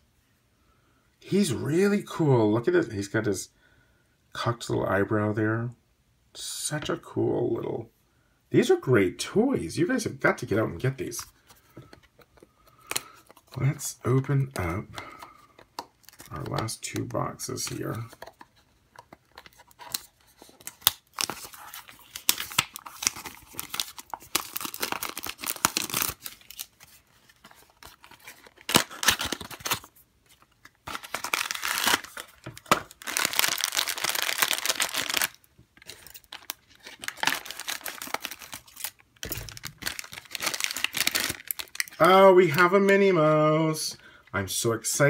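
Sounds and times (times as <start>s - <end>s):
plastic bag tearing and crinkling: 20.6s - 27.1s, 27.7s - 29.9s, 30.8s - 42.0s.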